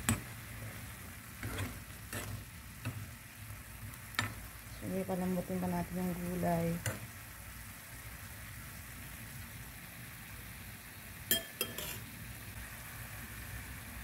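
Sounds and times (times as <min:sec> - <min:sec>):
food simmering with soft sizzle: 0:00.0 - 0:14.0
utensil clinking on pan: 0:11.3 - 0:12.0.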